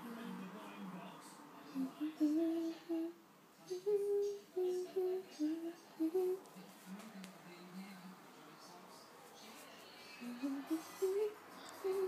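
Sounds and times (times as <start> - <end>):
person humming: 1.8 - 6.4, 10.2 - 12.0.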